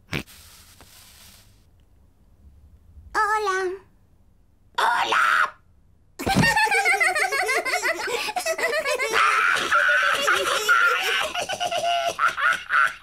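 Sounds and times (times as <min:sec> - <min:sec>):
cartoon children laughing: 0:06.2 - 0:13.0
cartoon parrot laughing: 0:06.7 - 0:13.0.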